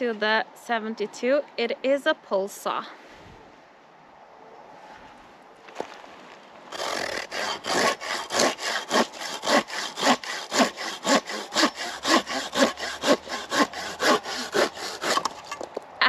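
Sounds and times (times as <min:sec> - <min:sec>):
hand saw cutting branch: 0:06.7 - 0:15.7.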